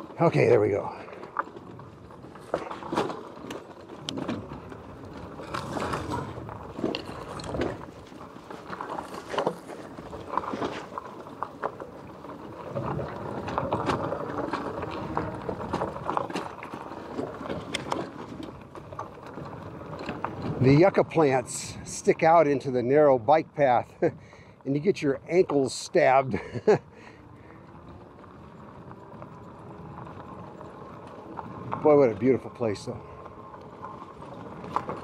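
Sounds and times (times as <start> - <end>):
tyres rumbling on dirt and stones: 0.0 - 35.0
bike knocks and rattles: 1.2 - 21.0.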